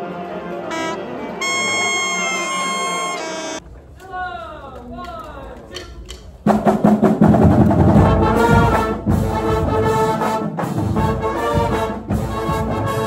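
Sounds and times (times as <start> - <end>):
marching band playing loudly: 0.7 - 3.6, 6.4 - 13.0.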